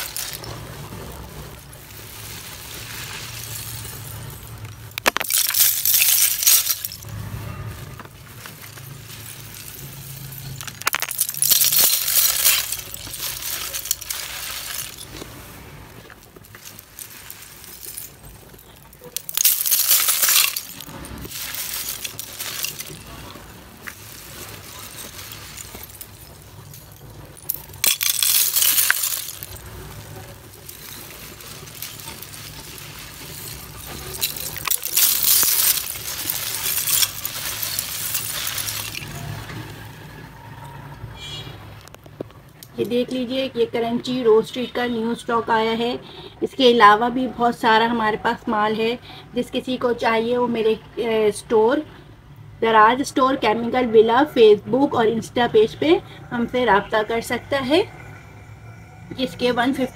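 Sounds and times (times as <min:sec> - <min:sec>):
dry clay flakes clinking and rattling: 0:00.0 - 0:40.0.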